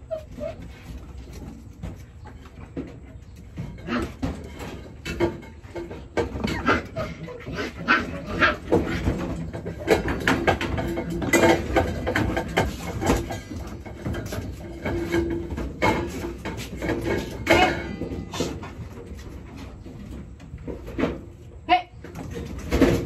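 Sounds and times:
puppies whimpering and yelping: 0.0 - 1.2.

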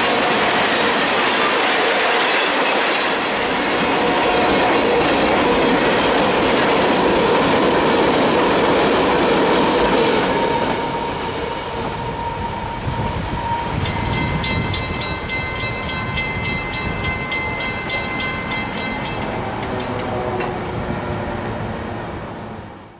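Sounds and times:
train wheel squeal: 0.0 - 22.2
freight train rumbling past: 0.0 - 22.9
rapid high ringing bell: 11.2 - 19.6.

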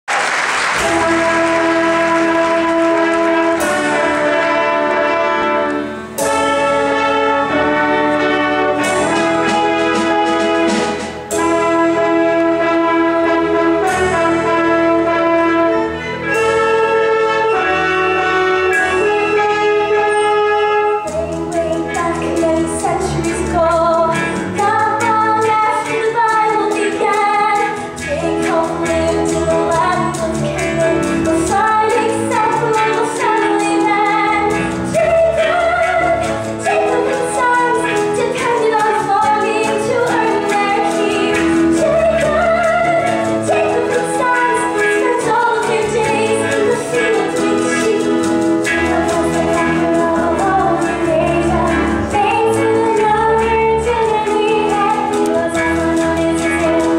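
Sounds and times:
pit orchestra playing: 0.1 - 56.9
chorus singing show tune: 21.2 - 56.9.

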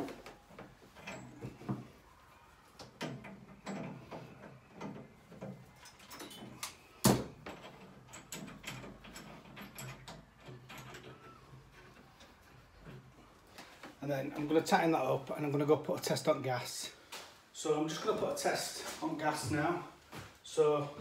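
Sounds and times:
pipe fittings clicking and knocking: 2.8 - 14.0.

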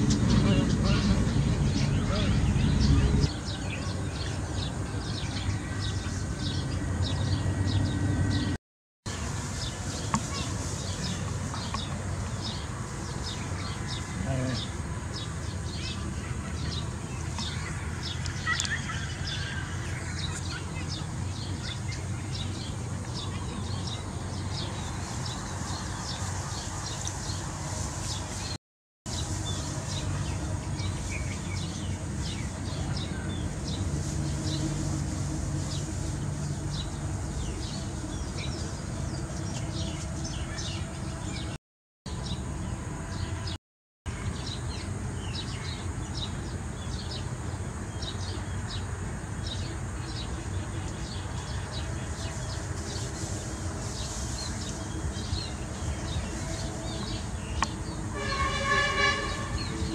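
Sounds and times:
small birds chirping: 9.2 - 34.8, 44.2 - 59.9.

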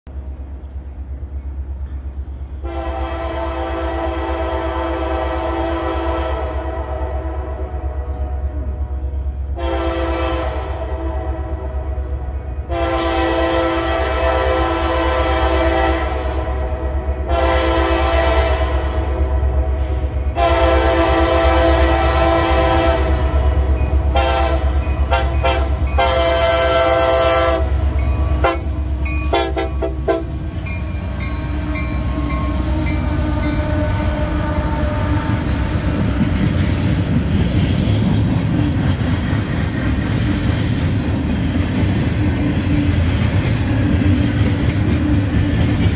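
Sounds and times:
train wagons rumbling on rails: 0.0 - 45.9
train air horn blasts: 2.6 - 36.9.

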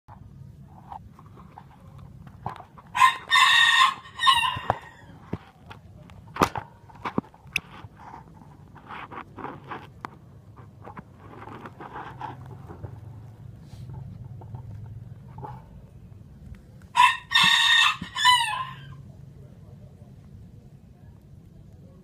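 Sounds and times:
rooster crowing: 2.9 - 5.1, 16.9 - 19.0
soft rustles: 4.6 - 16.9.

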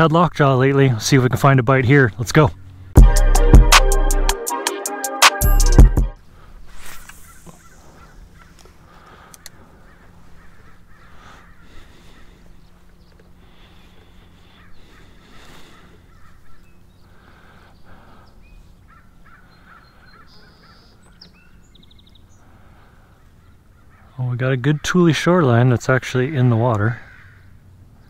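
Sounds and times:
steady low hum: 5.8 - 26.4
bird calls: 6.3 - 25.7, 26.3 - 28.0
crows cawing: 7.2 - 21.2, 22.3 - 25.2, 26.7 - 28.0.

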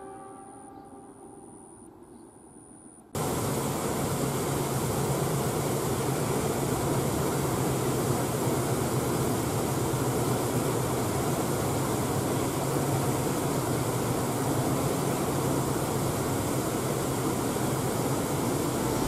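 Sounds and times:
low hum: 17.4 - 19.0.

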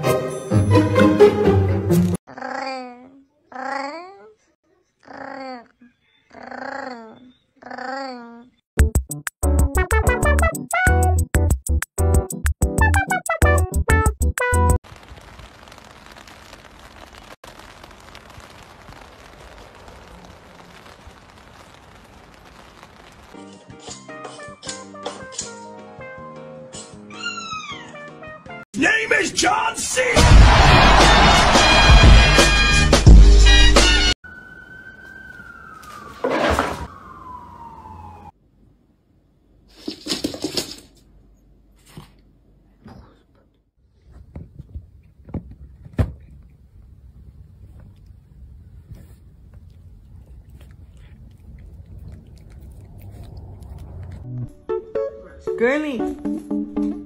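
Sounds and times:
rain on wet paving: 14.8 - 23.5
cat claws scrambling on floor: 39.7 - 41.0.

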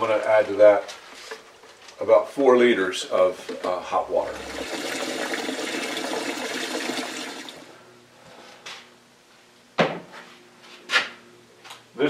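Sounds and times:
water running into a bucket: 3.4 - 7.8.

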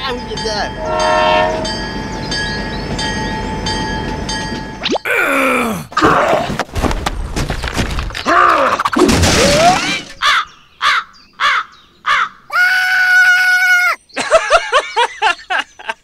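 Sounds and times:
person yelling: 5.1 - 5.9, 12.5 - 14.0
cartoon crash: 8.6 - 10.2.

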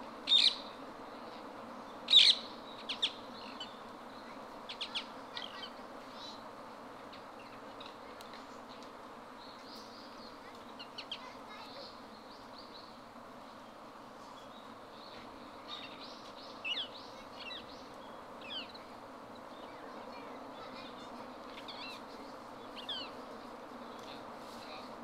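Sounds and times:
background hum: 0.0 - 25.0
parakeet calls: 0.3 - 0.7, 2.1 - 3.7, 4.7 - 5.8, 16.6 - 17.7.

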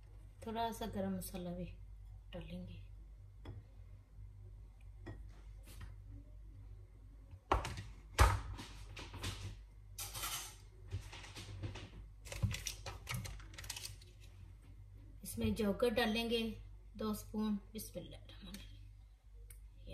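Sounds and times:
kitchen knocks and clatters: 7.5 - 13.4.

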